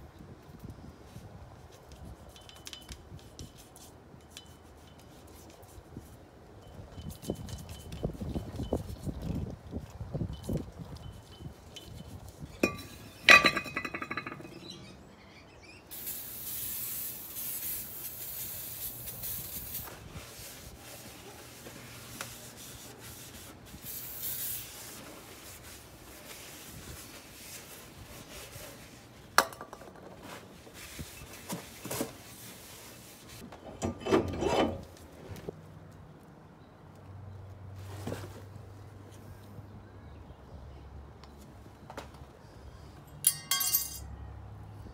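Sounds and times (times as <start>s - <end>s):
aerosol spray hissing: 15.9s - 19.9s
metal clunks: 33.5s - 34.8s
ringing metal clink: 43.2s - 44.1s.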